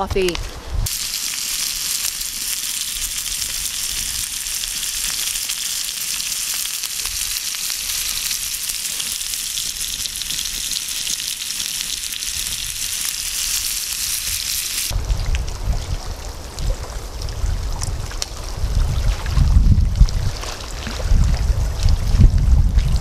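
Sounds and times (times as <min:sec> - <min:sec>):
bacon sizzling in a pan: 0:00.8 - 0:15.0.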